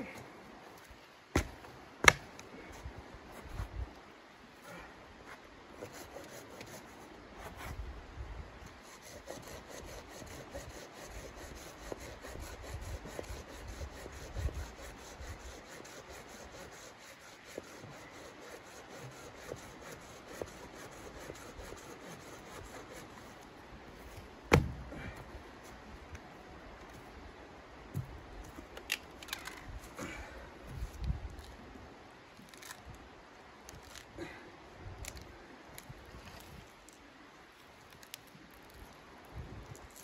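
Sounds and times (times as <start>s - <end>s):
hand saw cutting wood: 8.8s - 23.3s.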